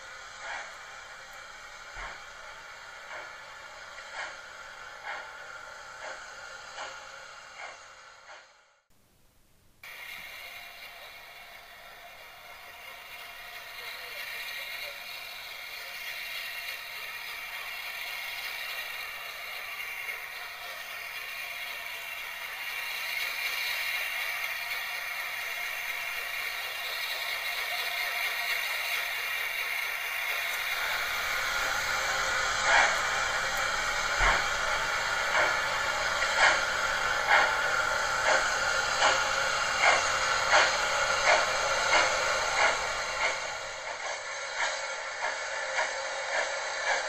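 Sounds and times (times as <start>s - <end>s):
model train wheels clicking: 0.0s - 8.5s, 9.8s - 47.0s
model train whirring: 0.0s - 8.8s, 9.8s - 47.0s.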